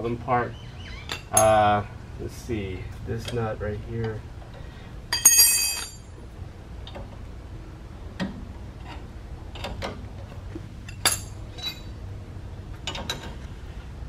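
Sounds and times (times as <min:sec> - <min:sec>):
low steady hum: 0:00.0 - 0:14.0
metal wrench clinking on nut: 0:05.1 - 0:06.1, 0:10.9 - 0:11.9.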